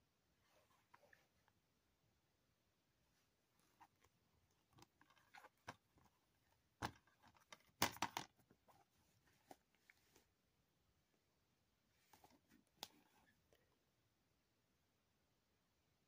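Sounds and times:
plastic cases clacking: 6.8 - 8.4.

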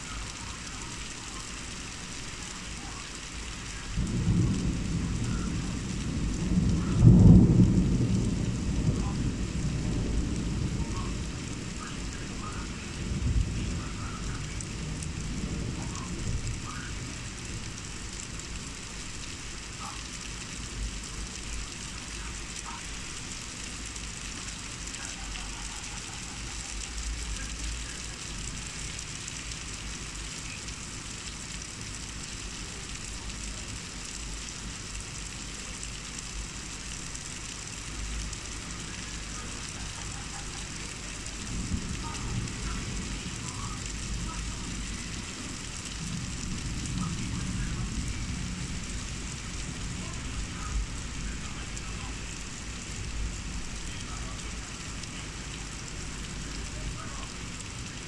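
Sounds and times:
heavy rain falling: 0.0 - 58.0
thunder rolling: 3.6 - 18.6, 38.0 - 53.8.

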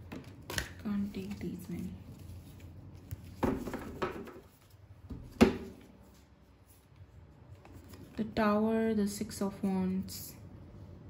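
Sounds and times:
cards rustling: 0.0 - 4.8, 5.8 - 8.2.

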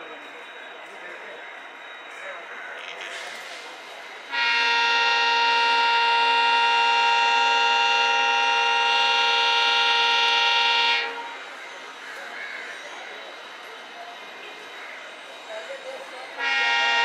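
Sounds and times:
locomotive air horn blast: 4.3 - 11.5, 16.4 - 17.0.

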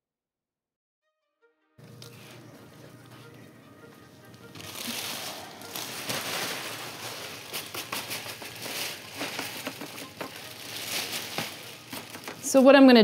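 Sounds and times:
rustling and crinkling: 4.3 - 13.0.

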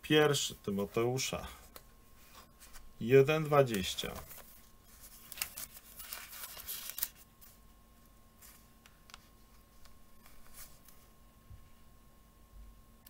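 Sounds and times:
book pages rustling: 2.2 - 2.9, 3.6 - 7.6, 8.4 - 11.1.

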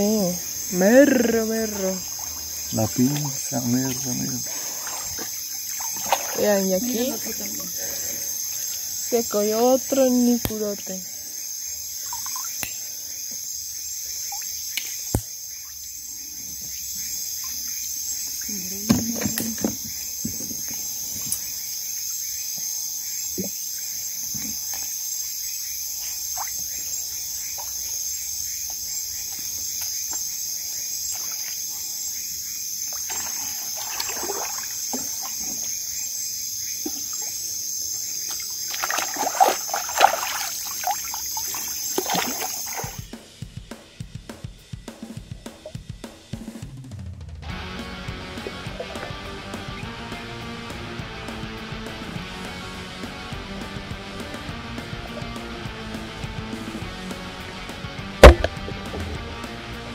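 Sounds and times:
night insects chorus: 0.0 - 45.8
water sloshing: 0.7 - 10.9, 32.9 - 35.8, 38.3 - 43.0, 58.2 - 58.6
hand splashing water: 1.9 - 8.1, 33.0 - 35.7, 38.7 - 43.0, 58.2 - 58.6.

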